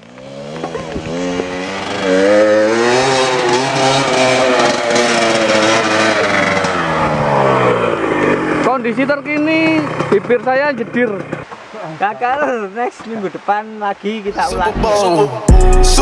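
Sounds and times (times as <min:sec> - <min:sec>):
motorcycle engine revving: 0:00.0 - 0:11.7.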